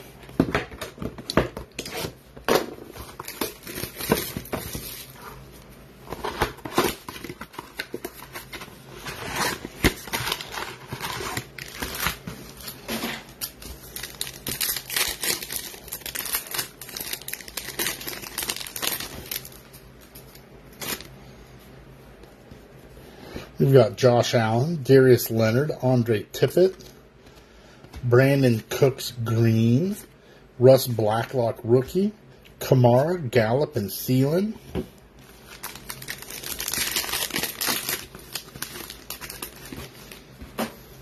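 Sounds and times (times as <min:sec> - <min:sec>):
foil packs tearing and crinkling: 0:03.1 - 0:05.2, 0:06.1 - 0:19.8, 0:35.4 - 0:40.2.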